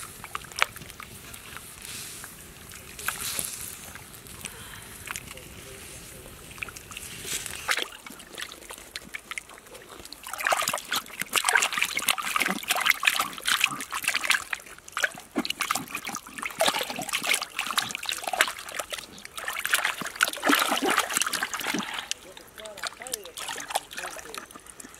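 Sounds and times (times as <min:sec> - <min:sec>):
hands splashing in stream water: 0:06.6 - 0:24.9.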